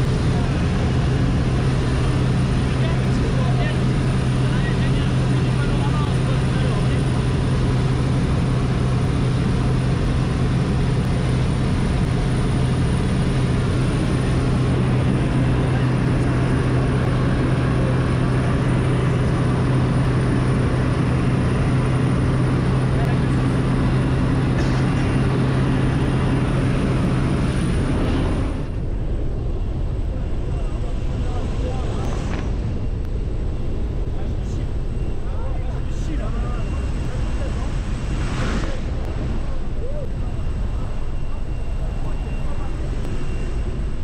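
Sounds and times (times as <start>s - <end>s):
plane engine droning: 0.0s - 44.0s
wind rushing: 36.7s - 40.6s.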